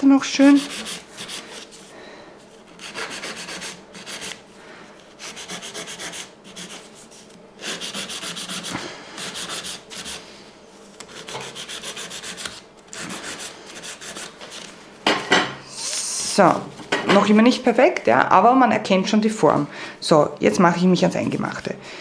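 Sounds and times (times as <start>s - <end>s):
nail file rasping: 0.6s - 1.5s, 2.8s - 4.4s, 5.2s - 6.8s, 7.6s - 10.2s, 11.0s - 14.3s.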